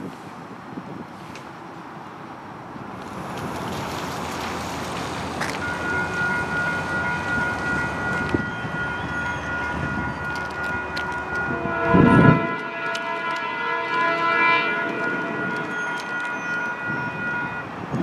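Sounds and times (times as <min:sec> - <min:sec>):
crossing warning bell ringing: 0:05.4 - 0:18.0.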